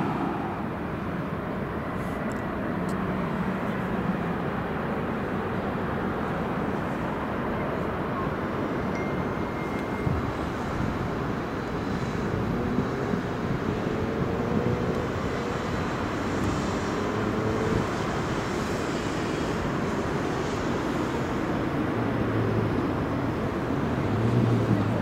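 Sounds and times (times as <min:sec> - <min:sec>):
distant traffic hum: 0:00.0 - 0:25.0
tram crossing a bridge: 0:00.0 - 0:25.0.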